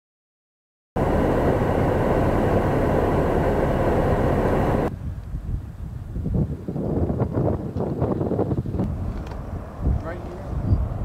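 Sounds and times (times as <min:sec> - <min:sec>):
wind gusting against microphone: 0:01.0 - 0:11.0.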